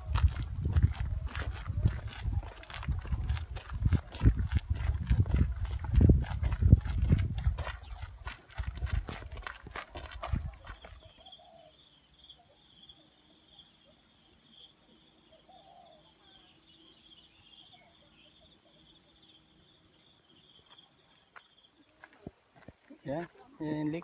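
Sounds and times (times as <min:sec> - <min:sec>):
footsteps on dirt: 0:00.0 - 0:11.4, 0:20.6 - 0:24.0
insects droning: 0:00.0 - 0:24.0.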